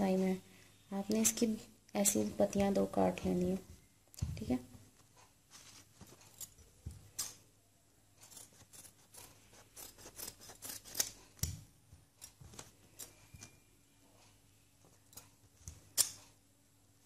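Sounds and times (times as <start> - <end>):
scissors snipping fabric: 8.2 - 11.5.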